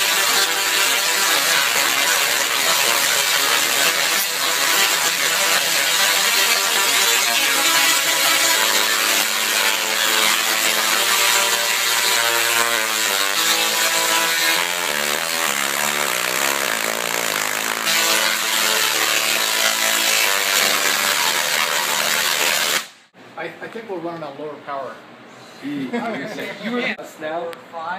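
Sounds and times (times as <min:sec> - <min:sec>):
tesla coil buzzing a tune: 0:00.0 - 0:23.1.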